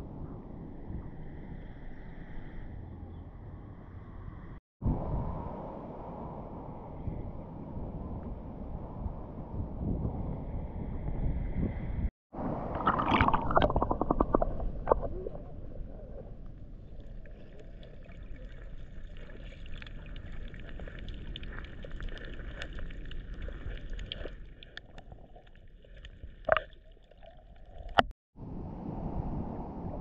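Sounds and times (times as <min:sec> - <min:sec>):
muffled underwater wash: 0:00.0 - 0:30.0
water splashing and bubbling: 0:12.3 - 0:28.1.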